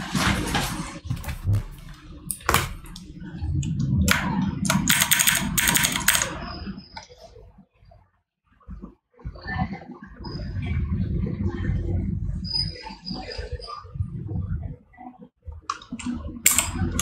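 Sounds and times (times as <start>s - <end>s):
low steady rumble: 0.1s - 5.7s, 8.7s - 17.0s
keyboard and mouse clicking: 2.3s - 7.2s.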